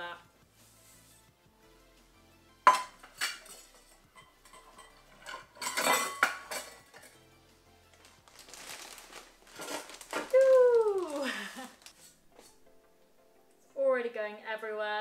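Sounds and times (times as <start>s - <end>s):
metal cup clinking against glassware: 2.7s - 7.2s.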